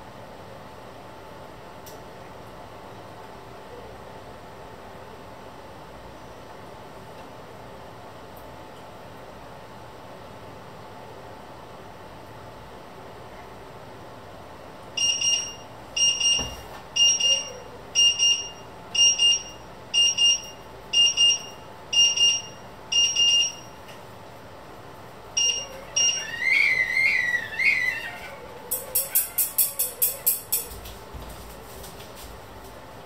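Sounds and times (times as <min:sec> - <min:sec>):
high-pitched alarm beeping: 0:15.0 - 0:23.8, 0:25.4 - 0:27.5.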